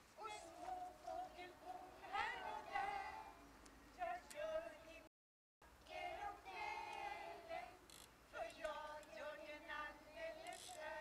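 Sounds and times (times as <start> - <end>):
children and adults singing: 0.2 - 4.8, 5.8 - 11.0.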